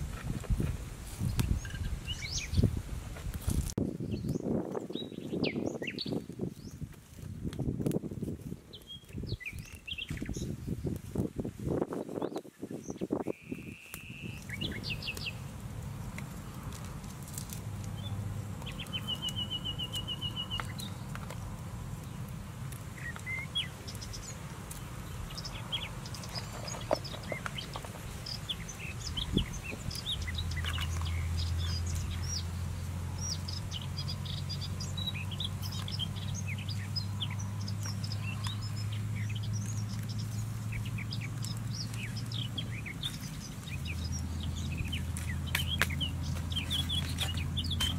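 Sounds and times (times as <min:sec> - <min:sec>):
small birds chirping: 0:00.0 - 0:02.8, 0:03.9 - 0:07.3, 0:07.9 - 0:47.9
bird trill: 0:18.7 - 0:21.0.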